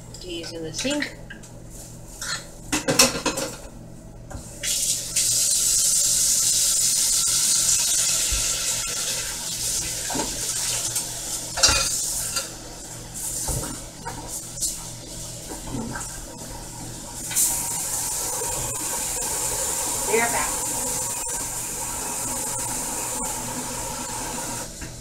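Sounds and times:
dishes clinking in sink: 0:02.2 - 0:03.7, 0:11.6 - 0:12.5.

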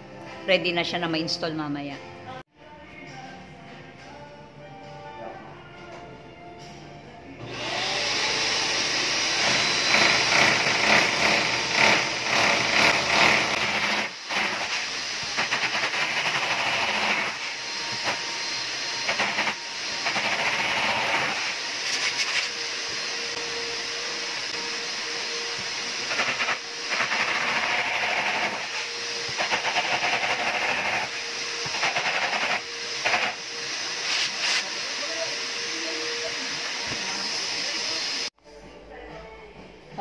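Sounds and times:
electric drill boring into wall: 0:07.4 - 0:38.3.

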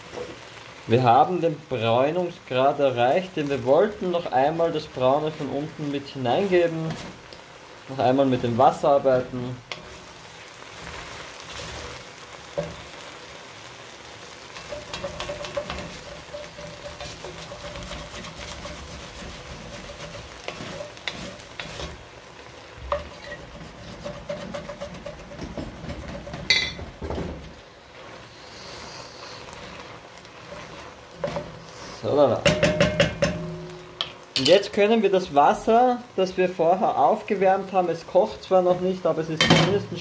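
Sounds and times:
onions sizzling in a pot: 0:00.0 - 0:40.0
wooden spoon scraping a pot: 0:03.5 - 0:07.4, 0:08.4 - 0:13.0, 0:14.4 - 0:34.6
spoon knocking on pot: 0:24.5 - 0:27.1, 0:32.4 - 0:34.5.

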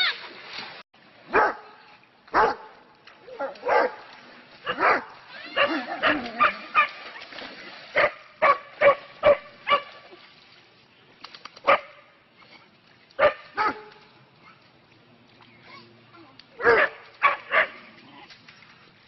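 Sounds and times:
dog barking: 0:01.3 - 0:01.7, 0:02.3 - 0:02.7, 0:03.6 - 0:04.0, 0:04.7 - 0:06.9, 0:08.0 - 0:09.9, 0:11.7 - 0:12.0, 0:13.2 - 0:13.9, 0:16.6 - 0:17.8.

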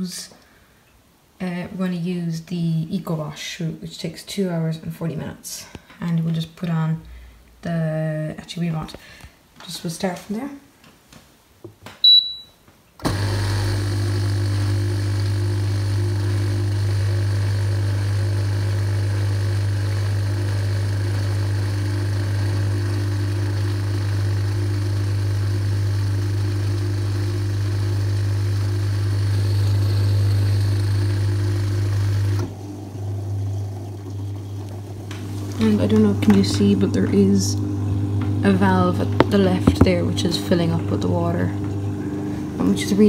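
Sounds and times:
dishwasher beep: 0:12.0 - 0:12.6
dishwasher electric hum: 0:13.0 - 0:43.0.

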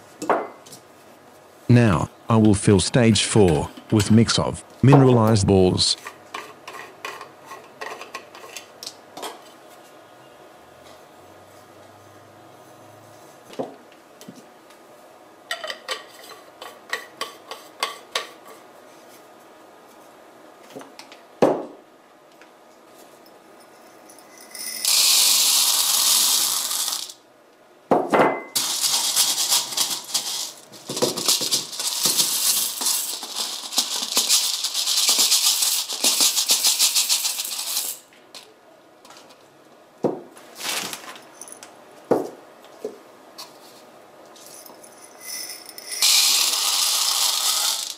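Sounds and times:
ceramic balls rattling into plastic: 0:24.5 - 0:27.2, 0:28.6 - 0:38.0, 0:45.2 - 0:47.9.

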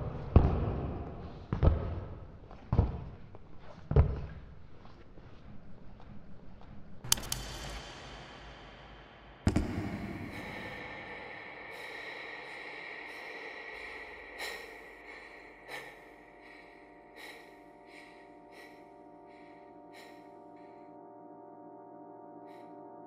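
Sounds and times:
sharp bang: 0:07.3 - 0:11.2.

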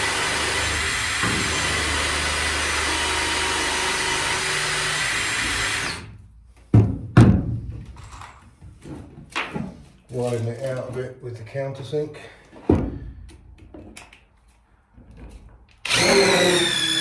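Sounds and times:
cordless drill drilling: 0:00.0 - 0:06.1, 0:15.8 - 0:17.0.

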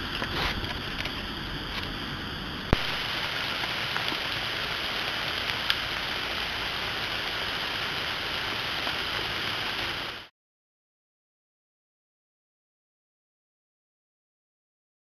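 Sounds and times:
outdoor hiss: 0:00.0 - 0:10.3.

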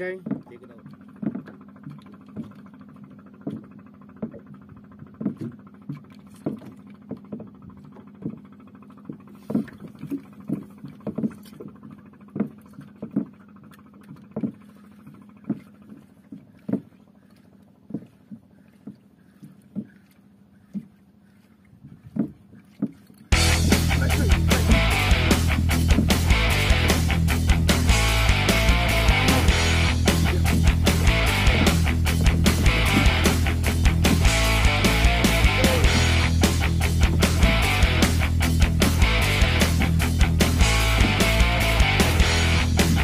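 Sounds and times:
low steady hum: 0:00.0 - 0:43.0
heavy rock music: 0:23.3 - 0:43.0.

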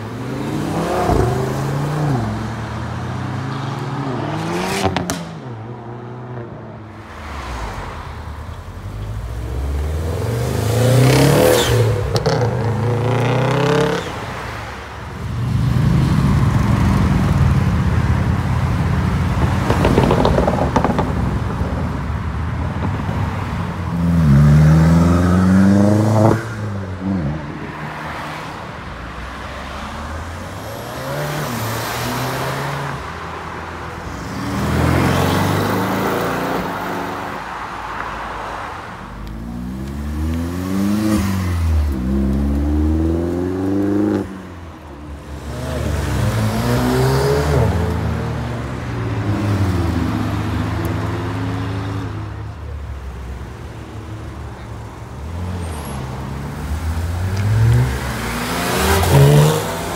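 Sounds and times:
cars accelerating hard: 0:08.8 - 0:14.6, 0:38.5 - 0:44.6, 0:45.2 - 0:52.3, 0:55.2 - 0:59.9.

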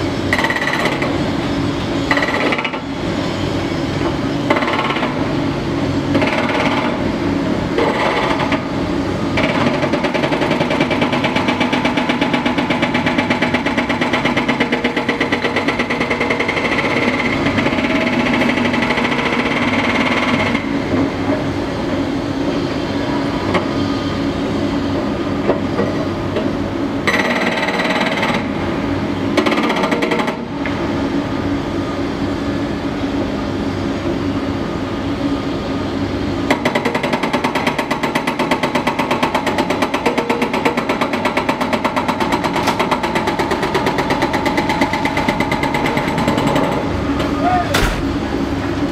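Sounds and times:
excavator machinery noise: 0:00.0 - 0:48.9
hydraulic hammer pounding rock: 0:06.1 - 0:07.1, 0:07.8 - 0:08.7, 0:09.3 - 0:20.6, 0:36.5 - 0:48.2.

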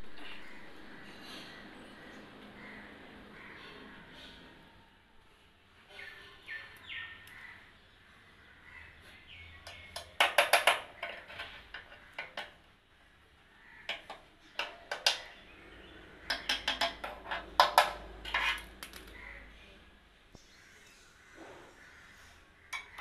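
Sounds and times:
metal rod tapping on metal: 0:16.3 - 0:19.0, 0:22.7 - 0:23.0.

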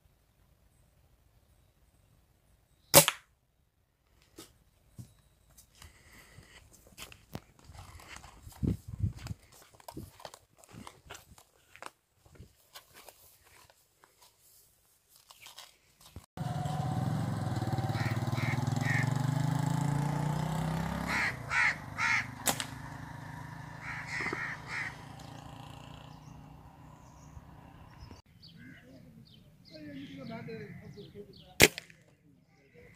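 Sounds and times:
crows cawing: 0:17.7 - 0:19.5, 0:21.0 - 0:22.4, 0:23.4 - 0:25.3, 0:28.6 - 0:28.9.

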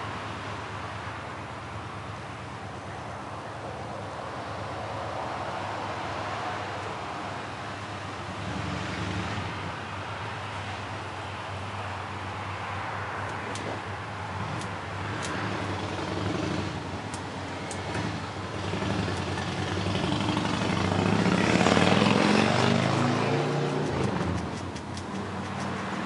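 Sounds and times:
vehicle passing by: 0:12.5 - 0:26.0.

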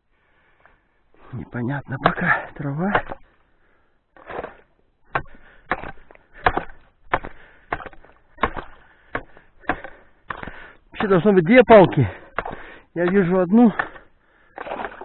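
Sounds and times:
ice chisel chopping ice: 0:02.0 - 0:03.2, 0:04.2 - 0:11.2, 0:11.8 - 0:15.0.

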